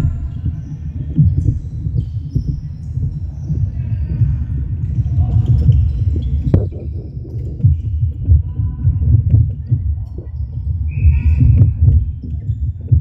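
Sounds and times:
low hall rumble: 0.0 - 7.0.

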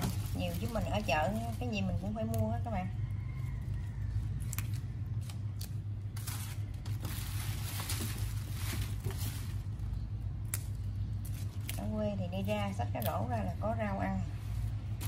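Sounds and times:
leaves rustling: 0.0 - 2.3, 4.4 - 10.0
plant stems snapping: 4.4 - 5.8, 10.4 - 11.9.

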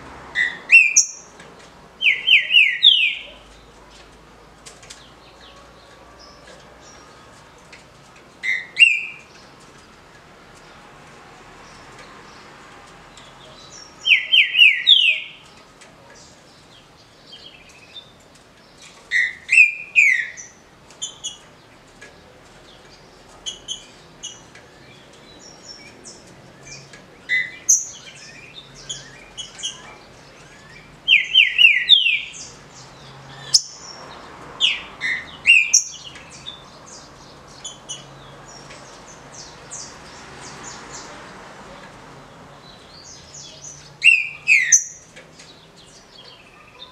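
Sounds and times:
bird whistled song: 0.4 - 1.2, 2.0 - 3.3, 8.5 - 9.2, 19.2 - 20.5, 34.7 - 36.0, 44.0 - 45.0.

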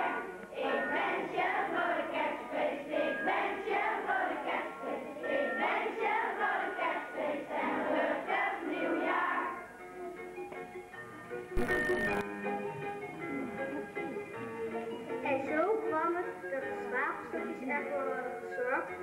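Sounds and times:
children singing in unison: 0.0 - 9.6.

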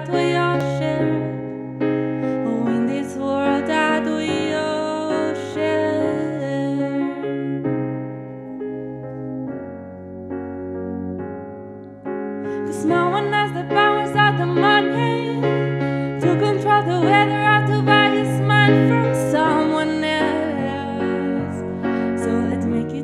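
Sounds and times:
woman singing: 0.0 - 1.7, 2.3 - 7.6, 12.6 - 23.0
electric piano chords: 0.0 - 23.0.

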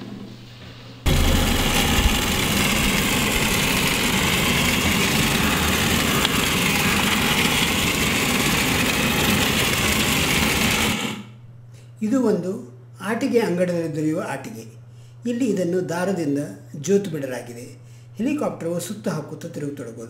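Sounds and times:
toy helicopter motor whirring: 1.1 - 11.3.

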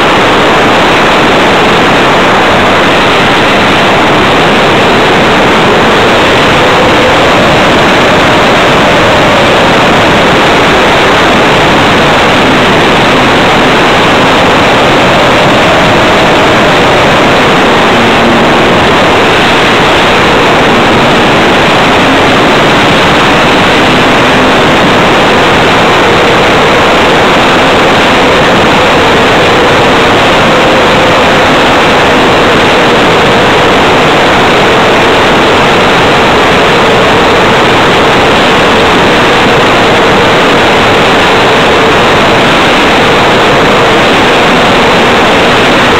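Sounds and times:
wind rushing past: 0.0 - 35.0.

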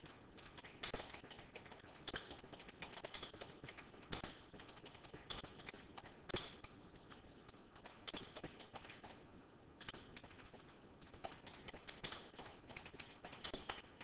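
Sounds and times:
tapping and clicking: 0.0 - 9.2, 9.8 - 14.0.

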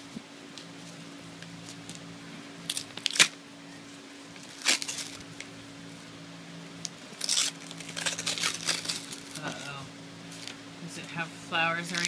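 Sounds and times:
steady low hum: 0.0 - 12.0
paper envelope tearing: 2.7 - 3.4, 4.4 - 5.3, 7.2 - 9.7.

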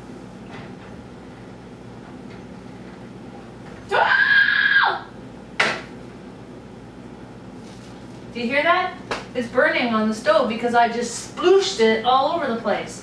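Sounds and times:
woman yelping: 3.9 - 5.1.

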